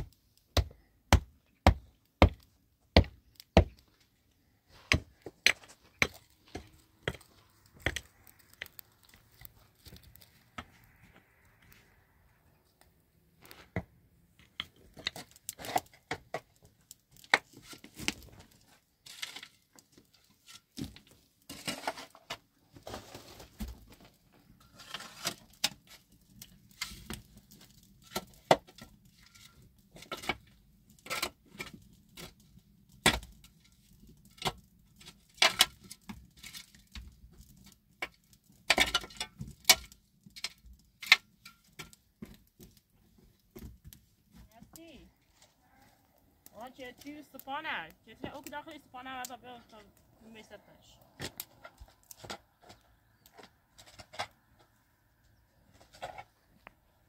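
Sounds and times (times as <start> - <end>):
sharp tool strikes on stony soil: 0.6 - 2.4, 33.0 - 33.3
shovel scraping earth and stones: 4.7 - 10.9, 14.4 - 32.4, 55.7 - 56.5.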